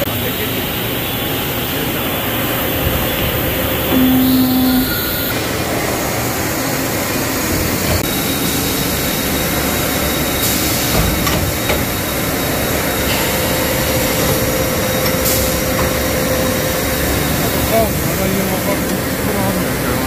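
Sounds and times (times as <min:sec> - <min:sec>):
machine running loudly: 0:00.0 - 0:20.0
steady tone: 0:03.6 - 0:05.4.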